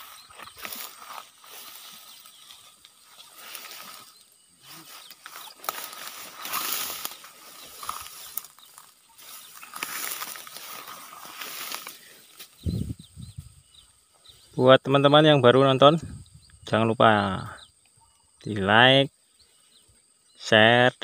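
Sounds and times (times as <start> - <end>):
grass and ferns rustling: 0.0 - 15.2
stems snapping: 5.1 - 12.6.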